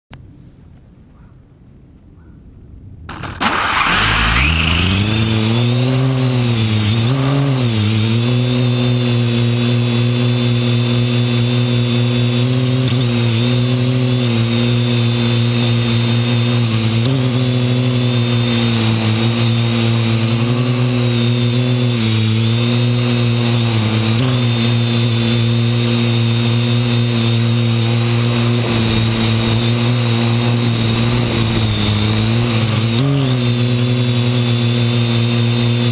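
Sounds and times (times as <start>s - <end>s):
drone motors and propellers humming: 2.0s - 35.9s.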